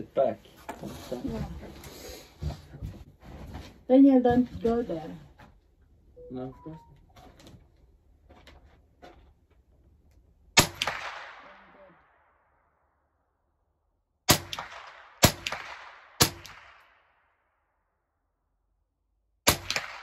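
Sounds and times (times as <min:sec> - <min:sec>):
rifle shots echoing: 0:10.6 - 0:12.4, 0:14.3 - 0:17.2, 0:19.4 - 0:20.0.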